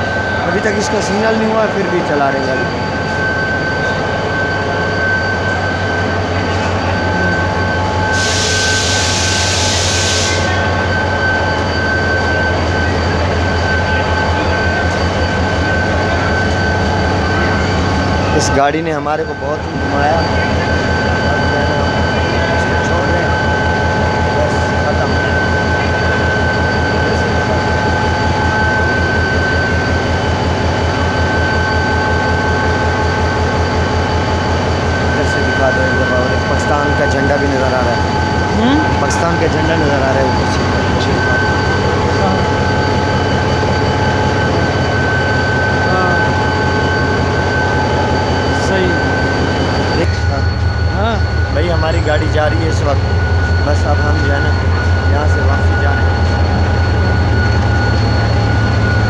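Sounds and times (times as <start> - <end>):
diesel locomotive idling: 0.0 - 59.0
thin high whine: 0.0 - 59.0
train low hum: 0.0 - 59.0
loud hiss: 8.2 - 10.6.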